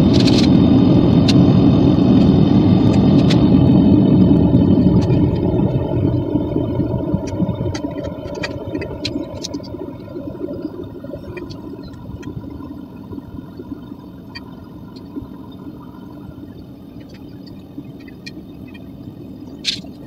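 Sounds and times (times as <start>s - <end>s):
furnace burner rushing: 0.0s - 14.1s
small sharp crackles and ticks: 7.2s - 9.9s, 16.2s - 20.0s.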